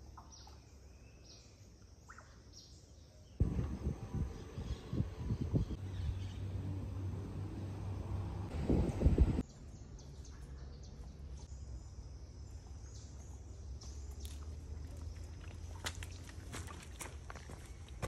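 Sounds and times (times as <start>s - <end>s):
low rumble: 3.4s - 9.4s.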